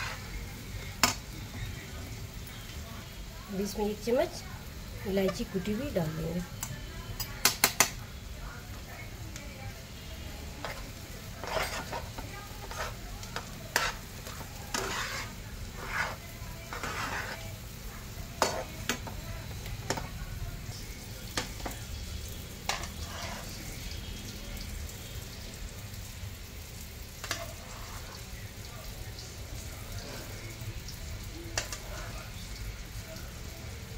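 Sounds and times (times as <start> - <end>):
metal spatula scraping a pan: 0.0 - 1.3, 10.5 - 19.2, 22.6 - 24.0, 27.1 - 28.3, 29.9 - 30.5, 31.6 - 32.4
spatula knocking against pan: 7.2 - 8.0.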